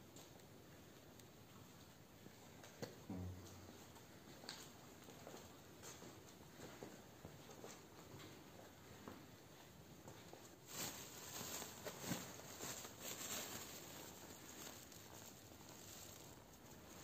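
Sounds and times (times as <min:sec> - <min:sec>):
sacks rustling and shuffling: 0:10.5 - 0:17.0.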